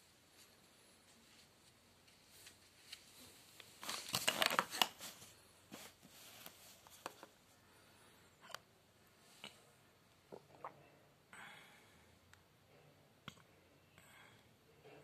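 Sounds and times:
plastic toys clattering: 3.9 - 5.1.

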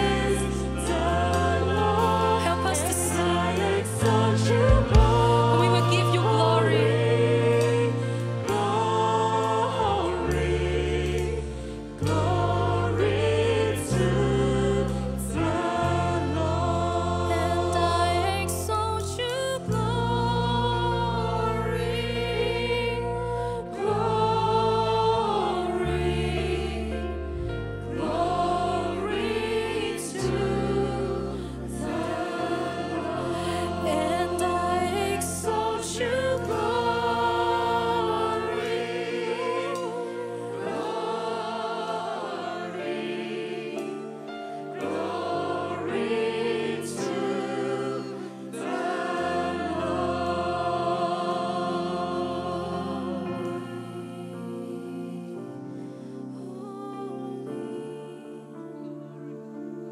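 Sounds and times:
low bass accompaniment: 0.0 - 38.8
voices singing in harmony: 0.0 - 59.9.

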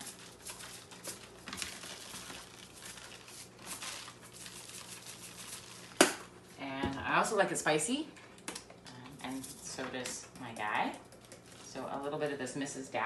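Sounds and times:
plastic bags crinkling: 0.0 - 6.5.

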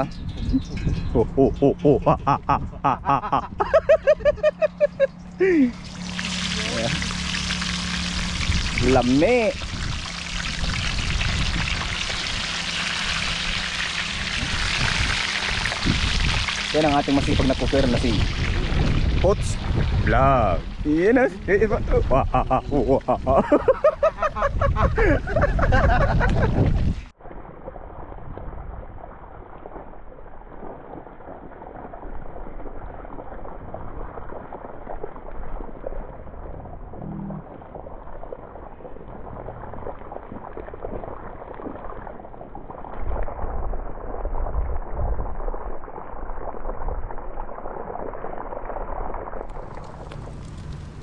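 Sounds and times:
fish sizzling in oil: 5.8 - 19.6.

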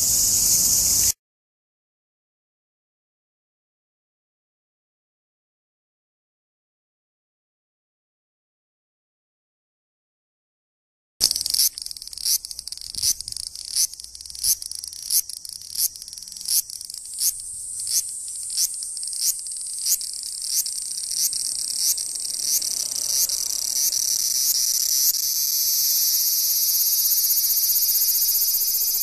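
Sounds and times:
cicada buzzing: 0.0 - 1.2, 11.2 - 29.0.

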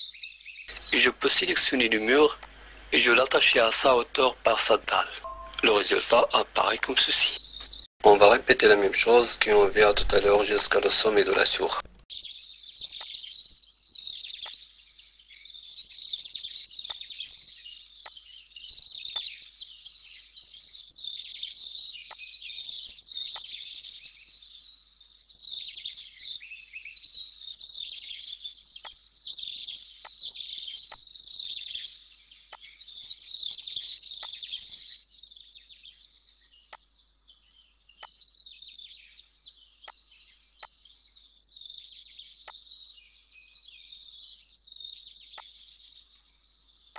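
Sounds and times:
small birds chirping: 0.0 - 46.9.

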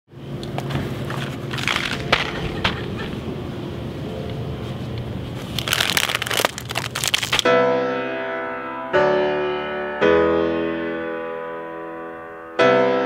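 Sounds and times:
steady low hum: 0.1 - 7.5
sharp crinkles: 0.8 - 2.8, 5.0 - 7.5
candy boxes and bags rustling: 0.8 - 3.0, 5.3 - 7.5.

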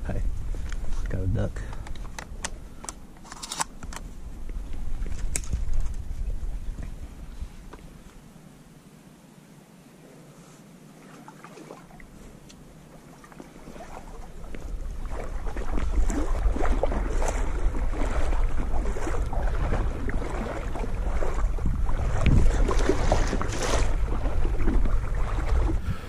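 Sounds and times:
wind rumble on microphone: 0.0 - 2.7, 3.9 - 8.1, 13.6 - 26.0
small water splashes: 11.0 - 25.8.

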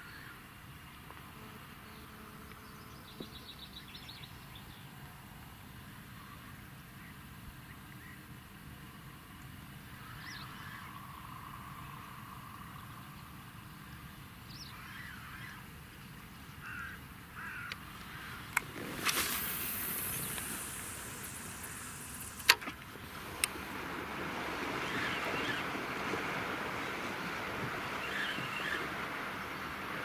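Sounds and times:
birds calling faintly: 9.9 - 22.9, 24.4 - 30.0
brief rush of noise: 18.7 - 22.5
sharp click: 22.2 - 22.8.

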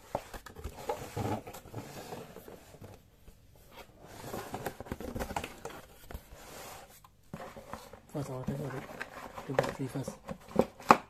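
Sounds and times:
cardboard rustling and scraping: 0.0 - 11.0.

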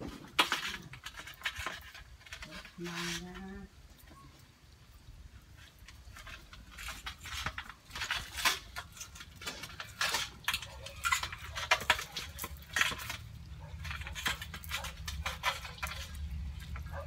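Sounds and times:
clinks against steel basin: 6.2 - 17.0.

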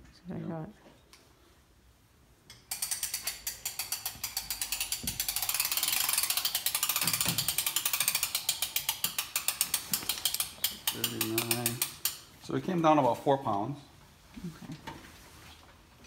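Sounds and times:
ratchet crank clicking rapidly: 2.5 - 12.3.

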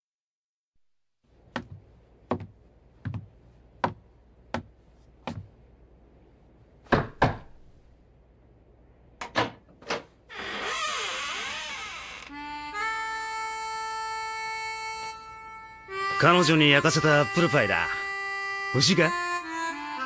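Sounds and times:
footsteps on wooden floor: 1.5 - 5.6
knocking on wooden door: 1.6 - 4.0, 6.9 - 7.6.

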